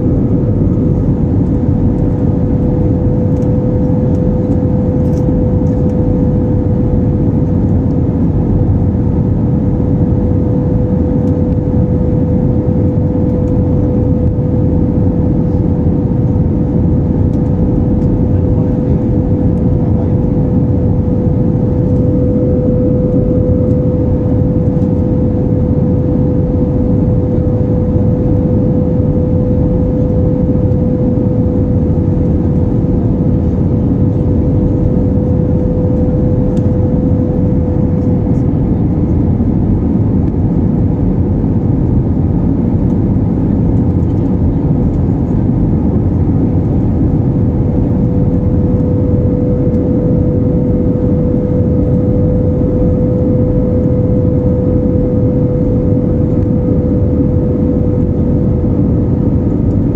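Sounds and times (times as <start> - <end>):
steady tone: 0.0 - 7.1, 17.0 - 39.4, 47.4 - 58.5
jet engine and airflow rush: 0.0 - 59.9.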